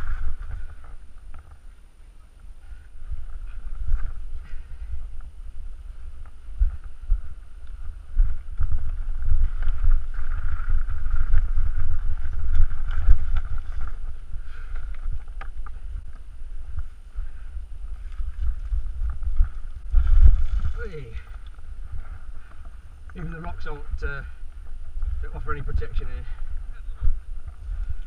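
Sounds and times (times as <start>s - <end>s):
wind rumble on microphone: 0.0s - 28.0s
bike rattling over rocks: 7.8s - 17.0s, 17.8s - 23.9s.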